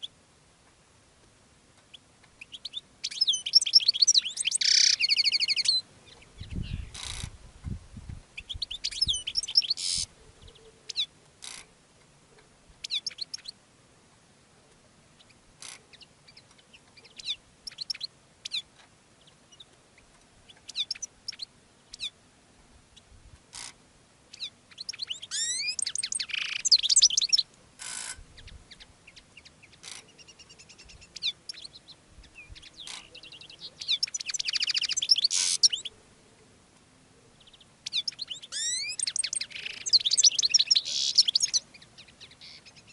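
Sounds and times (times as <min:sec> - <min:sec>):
goldfinch twittering song: 0:01.9 - 0:07.3, 0:08.4 - 0:11.6, 0:12.8 - 0:13.6, 0:15.2 - 0:22.2, 0:24.3 - 0:35.9, 0:37.4 - 0:42.9
sharp bird call notes: 0:32.8 - 0:35.9, 0:38.1 - 0:41.6.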